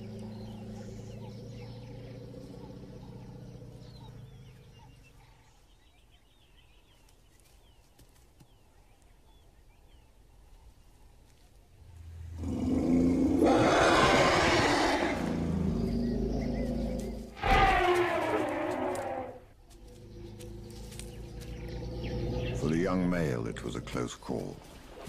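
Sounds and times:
birds chirping: 0.0 - 25.0
elephant trumpeting: 13.0 - 19.4.

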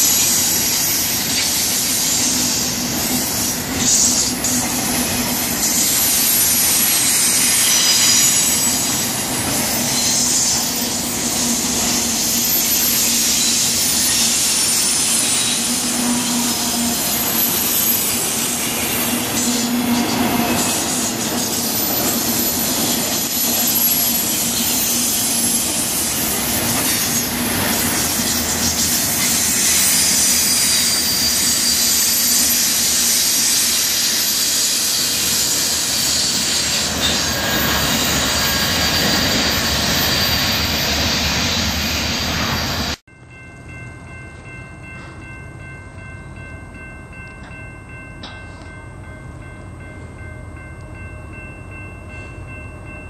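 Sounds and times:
freight train wheels rumbling: 0.0 - 53.0
high-pitched wheel squeal: 5.6 - 21.0, 26.8 - 42.9.

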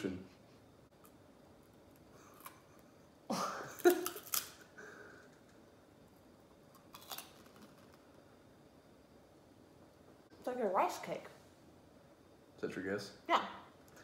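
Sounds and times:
crunching puffed rice snack: 6.7 - 8.0.

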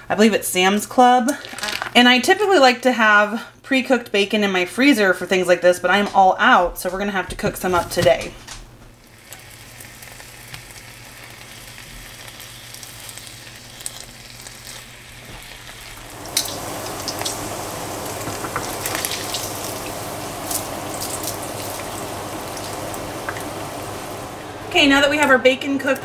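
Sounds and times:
bacon sizzling in a skillet: 9.0 - 24.5.

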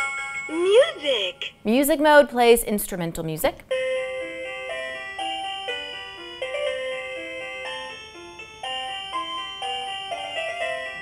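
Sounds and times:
toy playing electronic tune: 3.7 - 11.0.

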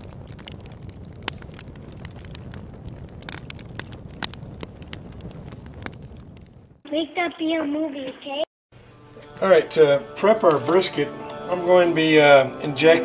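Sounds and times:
fire crackling with pops: 0.0 - 7.6, 10.4 - 11.5.

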